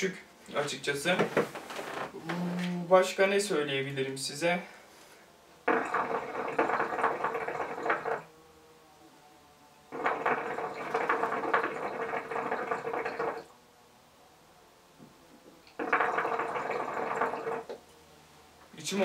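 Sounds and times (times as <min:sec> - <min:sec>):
hookah water bubbling: 0:05.6 - 0:08.2, 0:09.9 - 0:13.5, 0:15.7 - 0:17.8.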